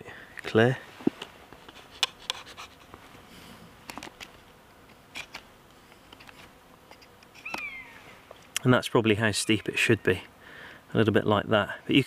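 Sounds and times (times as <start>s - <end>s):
knife scraping wood: 1.6s - 2.9s.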